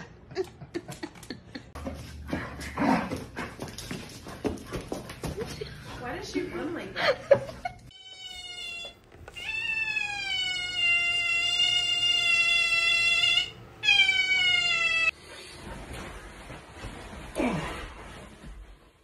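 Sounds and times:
cat yowling: 0:08.0 - 0:15.1.

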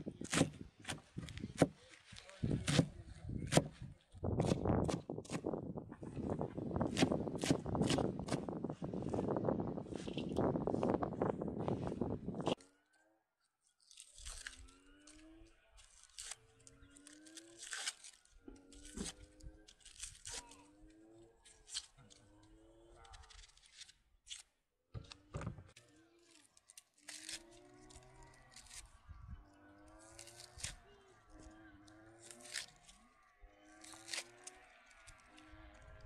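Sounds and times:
knife cutting onion: 0:00.2 - 0:01.8, 0:02.4 - 0:03.8, 0:06.8 - 0:08.4
onion skin tearing: 0:13.8 - 0:20.7, 0:21.5 - 0:22.2, 0:23.0 - 0:24.5, 0:26.2 - 0:28.9, 0:30.0 - 0:30.8, 0:32.1 - 0:33.0, 0:33.8 - 0:35.5.

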